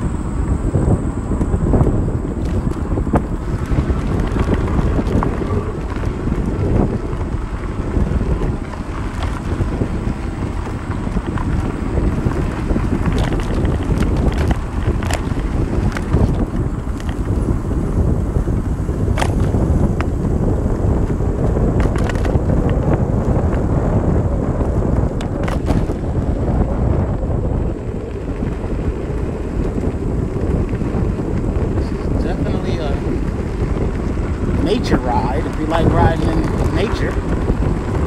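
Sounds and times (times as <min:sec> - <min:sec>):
wind buffeting microphone: 0:00.0 - 0:38.0
sharp clicks and rattles: 0:01.0 - 0:17.6, 0:21.1 - 0:23.6, 0:28.5 - 0:38.0.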